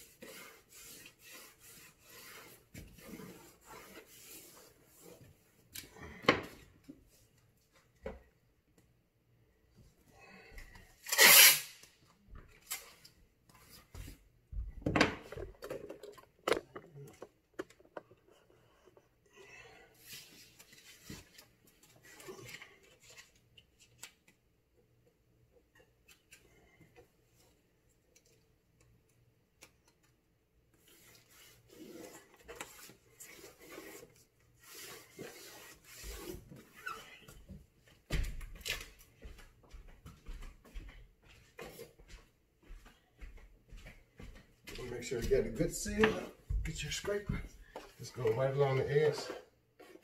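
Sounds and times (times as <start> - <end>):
tape rubbing and rustling: 0.0 - 5.8, 11.0 - 14.2, 20.0 - 24.4, 29.1 - 38.0.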